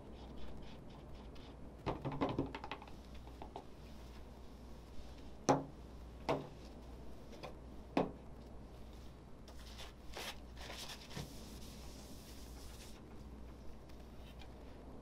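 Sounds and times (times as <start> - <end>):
paper towel rustling: 8.8 - 13.2.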